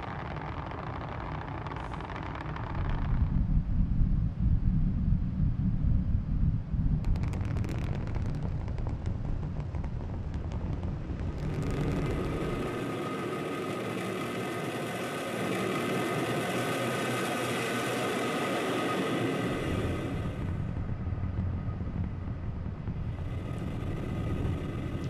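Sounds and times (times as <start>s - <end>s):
rocket engine roar: 8.6s - 25.0s.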